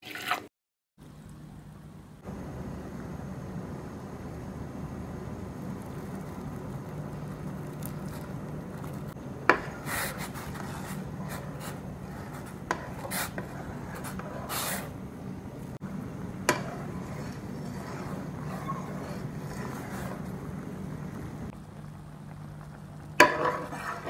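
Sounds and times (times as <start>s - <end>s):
spoon scraping pot: 8.8s - 14.9s, 16.4s - 20.6s, 23.2s - 24.0s.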